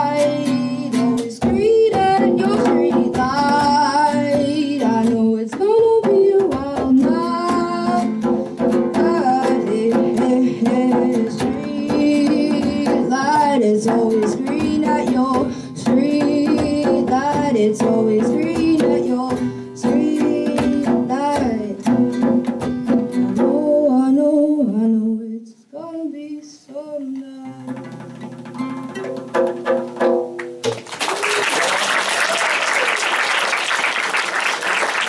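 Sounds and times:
boy singing: 0.0s - 22.2s, 23.3s - 27.9s
hand drum: 0.0s - 24.1s, 27.4s - 30.9s
strummed nylon-string guitar: 0.0s - 24.4s, 27.4s - 30.7s
audience applause: 30.7s - 35.0s.

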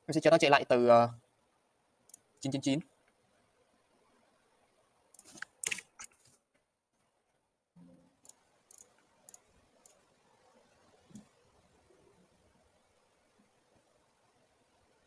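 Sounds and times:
computer mouse clicks: 2.1s - 2.3s, 5.1s - 6.3s, 8.2s - 10.0s.

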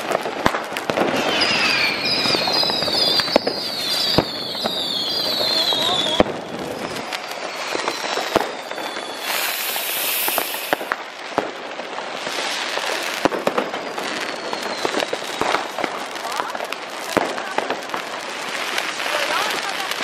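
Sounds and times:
firework bangs: 0.0s - 20.0s
firework fountain hissing: 0.0s - 20.0s
faint falling whistles: 1.2s - 10.9s, 14.2s - 15.8s.

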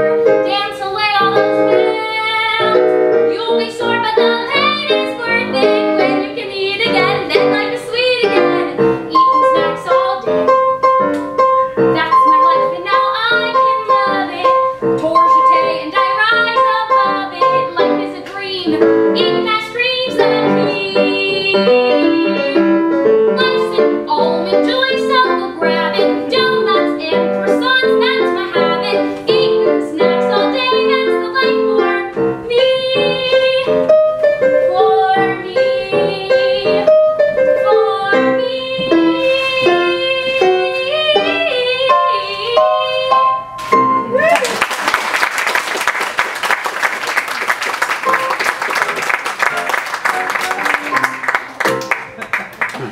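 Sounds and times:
piano accompaniment: 0.0s - 52.9s
woman singing show tune: 0.4s - 10.3s, 12.0s - 33.9s, 37.6s - 43.4s.

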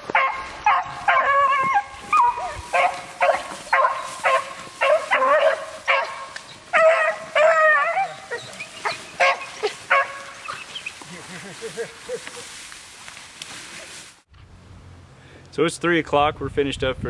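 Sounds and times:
dogs baying: 0.1s - 11.0s.

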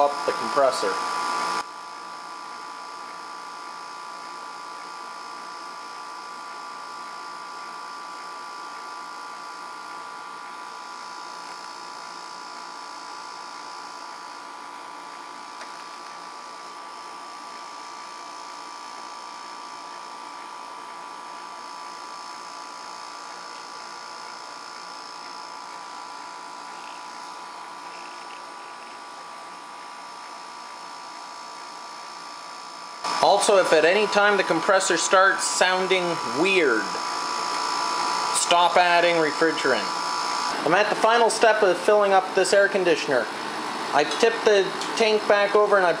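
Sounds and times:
air conditioner compressor humming: 0.0s - 46.0s.

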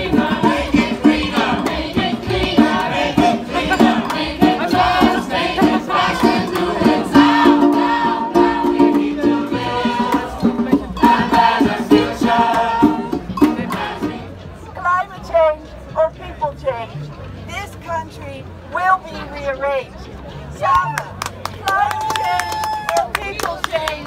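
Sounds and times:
group singing in chorus: 0.0s - 14.4s
acoustic guitar: 0.0s - 17.4s.

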